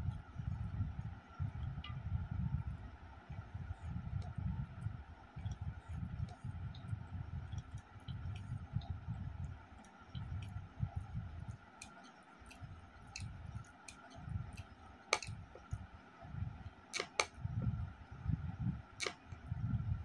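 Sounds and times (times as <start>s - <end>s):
sharp wet clicks: 4.2s - 15.9s, 16.6s - 17.4s.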